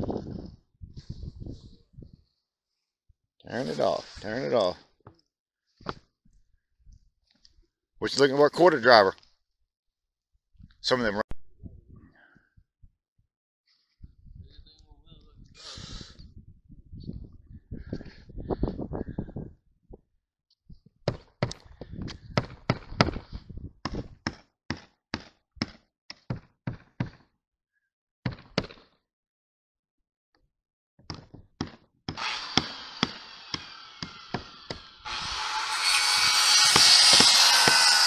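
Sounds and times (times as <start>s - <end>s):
hammer striking roof edge: 31.1s - 38.0s.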